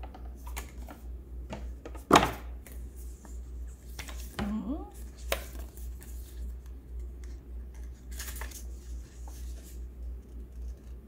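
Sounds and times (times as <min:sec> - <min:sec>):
paper rustling and crinkling: 0:03.0 - 0:11.0.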